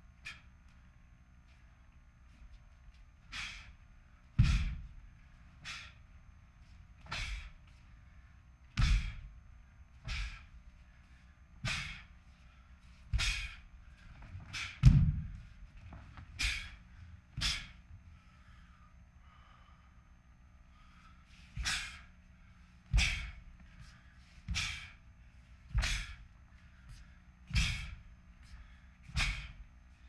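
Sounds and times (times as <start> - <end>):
foot thudding on floor: 4.4 - 5.0, 8.8 - 9.3, 14.2 - 16.6, 27.5 - 28.0.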